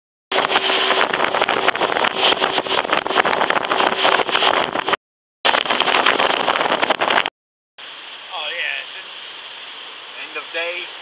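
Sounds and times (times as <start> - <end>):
wind rushing over microphone: 0.3 - 7.3
motorboat engine hum: 0.3 - 11.0.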